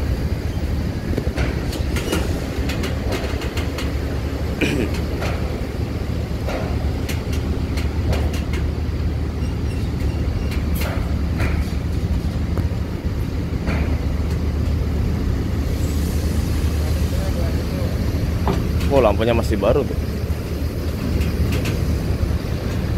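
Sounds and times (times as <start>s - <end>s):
bus diesel engine running: 0.0s - 22.9s
sharp clicks and knocks: 1.1s - 4.0s, 6.4s - 8.7s, 10.0s - 12.8s, 13.6s - 14.8s, 20.9s - 22.9s.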